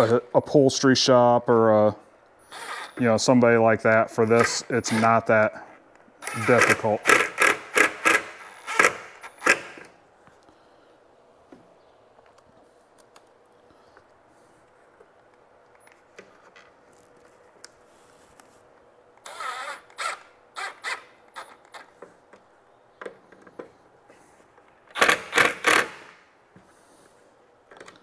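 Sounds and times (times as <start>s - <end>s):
cordless driver driving screws: 6.2s - 9.9s.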